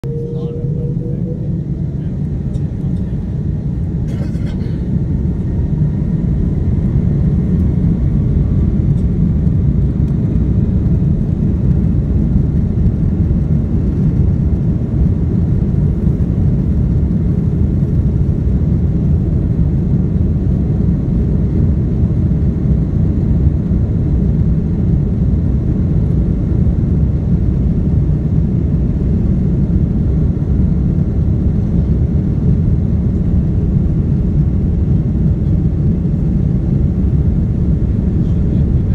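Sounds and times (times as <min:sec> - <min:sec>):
faint rising engine whine: 0:00.0 - 0:19.0
jet engines rumbling in cabin: 0:00.0 - 0:38.9.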